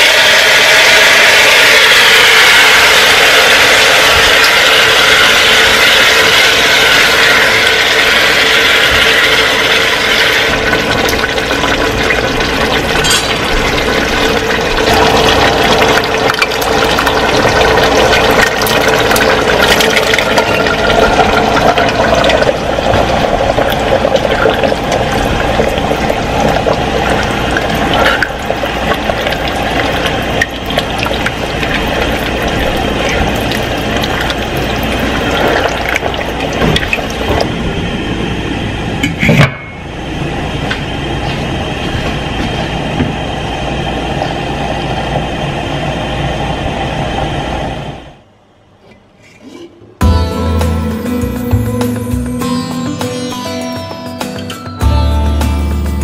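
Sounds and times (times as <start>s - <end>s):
food sizzling in a pot: 0.0s - 12.1s.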